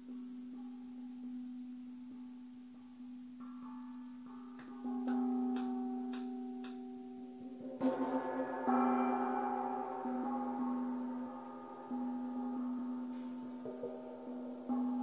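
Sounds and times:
sharp light taps on gong: 4.6s - 6.9s
gong struck and ringing: 4.9s - 15.0s.

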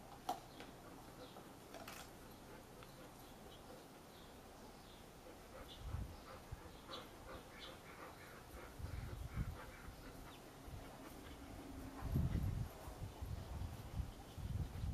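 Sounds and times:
faint dog sounds: 2.2s - 14.9s
low rumbling on microphone: 11.5s - 14.9s.

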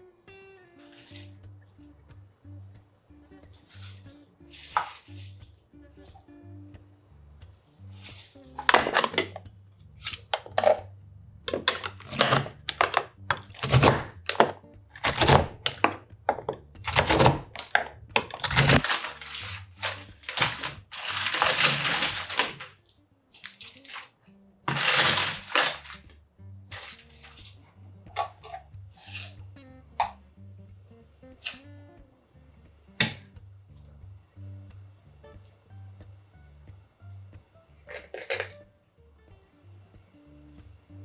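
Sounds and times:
blade chopping in plastic tub: 11.6s - 16.0s, 16.9s - 19.5s.

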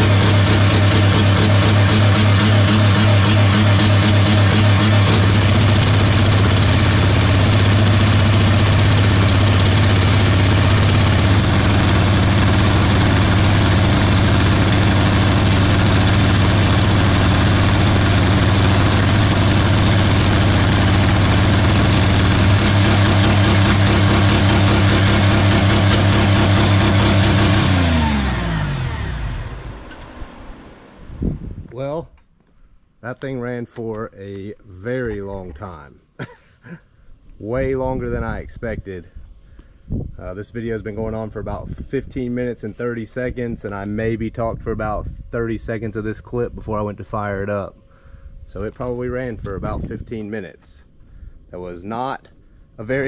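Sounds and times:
car engine at full throttle: 0.0s - 31.6s.

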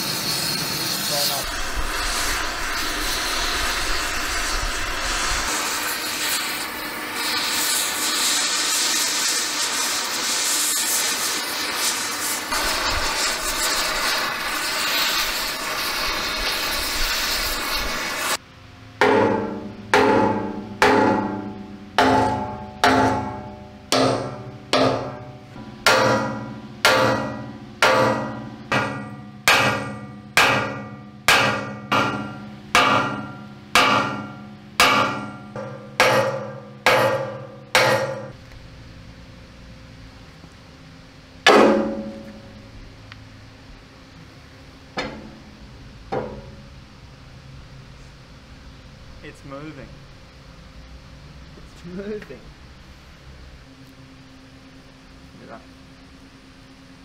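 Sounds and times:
gas torch flame hissing: 0.0s - 18.4s
steady low hum: 0.7s - 8.6s, 11.5s - 57.0s
ringing metal strikes: 19.0s - 38.4s, 41.5s - 42.6s.

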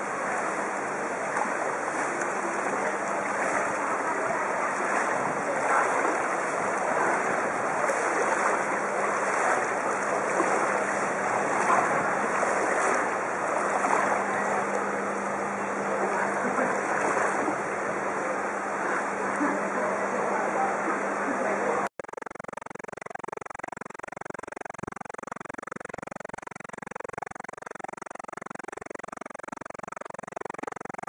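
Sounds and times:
bicycle splashing through floodwater: 0.0s - 21.6s.

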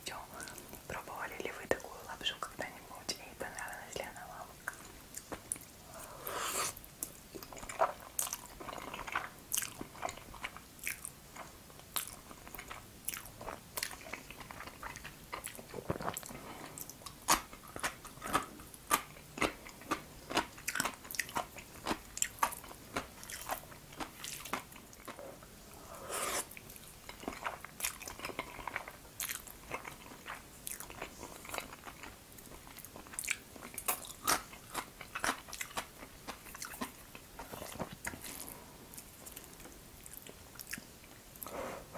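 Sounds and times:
person chewing noodles: 4.6s - 41.9s
sucking sounds: 5.9s - 6.8s, 25.8s - 26.5s.

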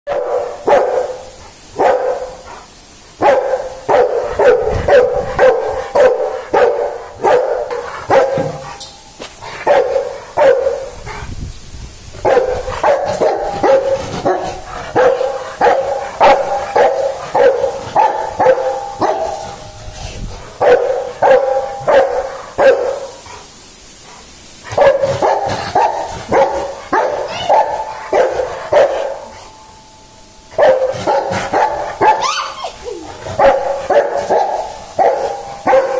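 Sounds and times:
dog barking: 0.1s - 2.6s, 3.2s - 8.8s, 9.6s - 11.2s, 12.2s - 19.7s, 20.6s - 23.4s, 24.7s - 29.3s, 30.6s - 32.7s, 33.3s - 35.9s.

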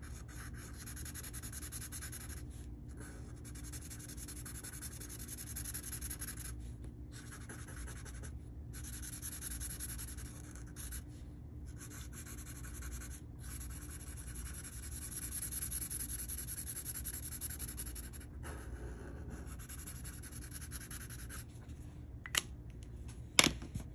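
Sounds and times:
marker scratching on paper: 0.0s - 21.6s.

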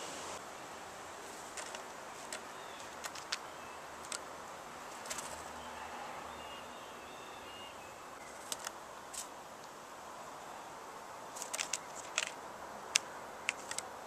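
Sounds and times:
outdoor background hiss: 0.0s - 14.0s
birds pecking at peanuts on wood: 1.2s - 5.6s, 8.2s - 9.8s, 11.2s - 14.0s
thin bird chirps: 2.3s - 4.0s.

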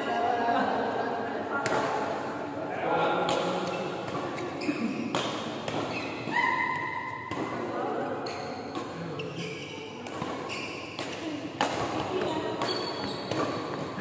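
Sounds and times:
racket hitting shuttlecock: 1.6s - 2.2s, 3.2s - 14.0s
shoe squeak on court: 3.7s - 5.2s, 5.8s - 6.6s, 8.2s - 11.0s, 12.1s - 14.0s.

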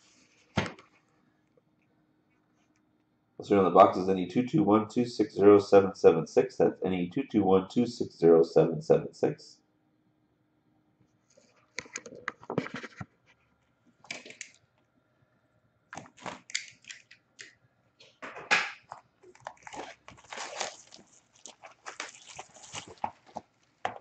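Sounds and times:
plastic wrap crinkling and tearing: 18.9s - 24.0s.

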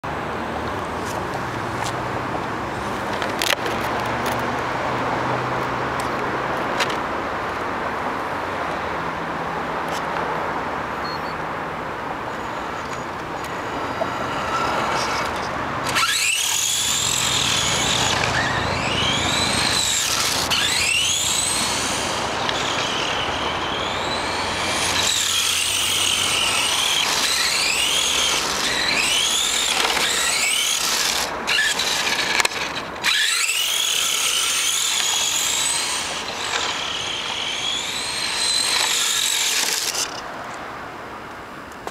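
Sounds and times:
rc car motor whining: 12.3s - 40.3s.

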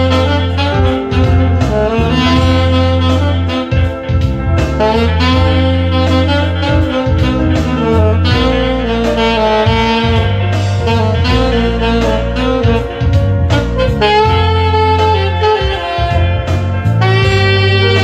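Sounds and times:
bass line: 0.0s - 18.0s
drums: 0.0s - 18.0s
saxophone melody: 0.0s - 18.0s.

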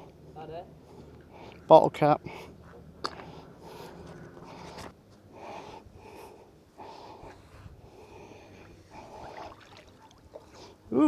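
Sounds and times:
person breathing: 0.8s - 9.8s.

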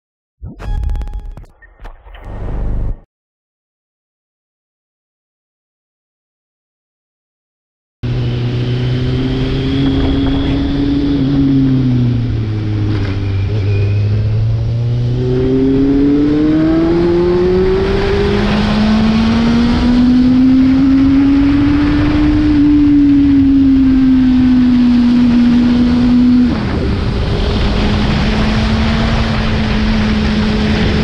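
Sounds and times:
motorcycle engine revving: 8.0s - 31.0s
wind rush: 8.8s - 13.4s, 20.6s - 31.0s.

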